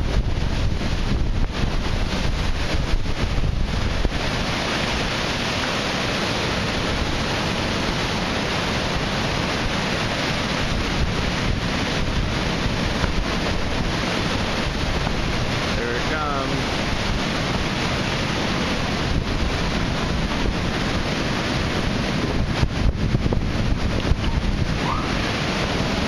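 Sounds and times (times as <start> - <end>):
surf crashing on pier pilings: 0.0 - 26.0
wind rumbling on microphone: 0.0 - 26.0.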